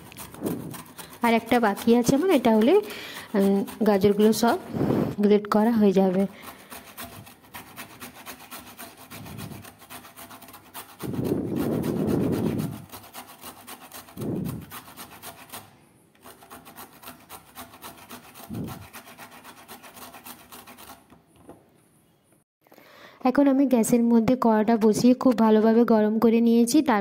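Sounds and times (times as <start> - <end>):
carrot rasping on hand grater: 0.0 - 21.1.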